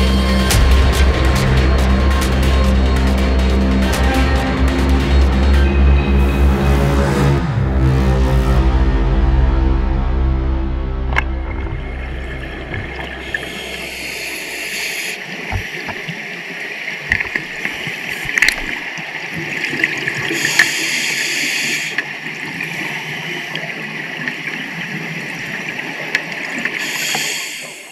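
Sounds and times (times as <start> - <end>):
steady water hiss: 13.0 - 27.9.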